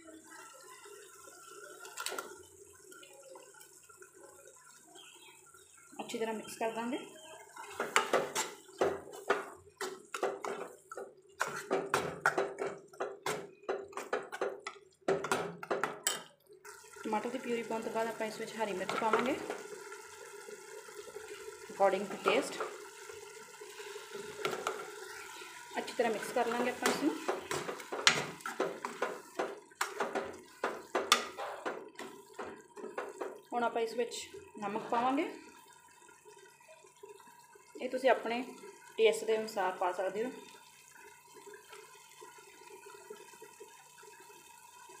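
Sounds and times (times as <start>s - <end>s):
ladle scraping metal pan: 11.4s - 14.4s.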